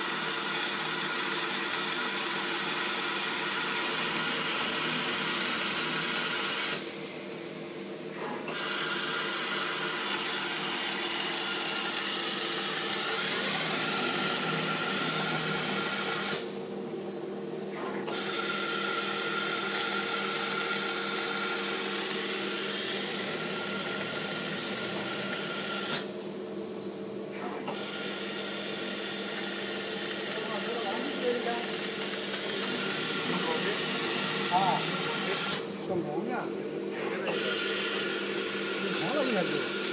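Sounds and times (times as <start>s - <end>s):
machine hum: 18.8s - 39.9s.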